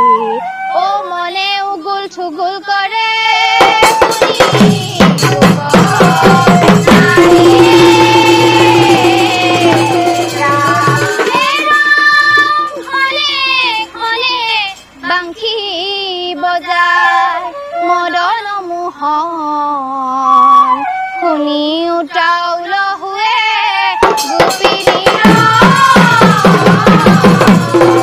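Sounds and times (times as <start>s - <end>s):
girls' chorus singing in unison: 1.9s - 17.5s, 22.1s - 28.0s
drums and percussion: 3.4s - 15.3s, 23.9s - 28.0s.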